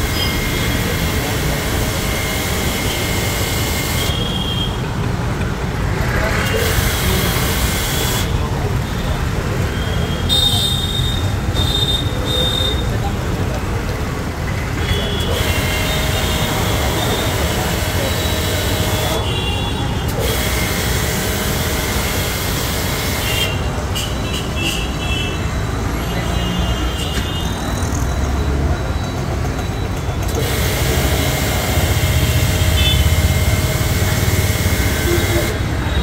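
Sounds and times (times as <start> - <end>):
pressure washer spraying water: 0.0 - 4.2, 6.5 - 8.3, 15.2 - 19.3, 20.1 - 23.6, 30.4 - 35.8
street traffic rumble: 0.0 - 36.0.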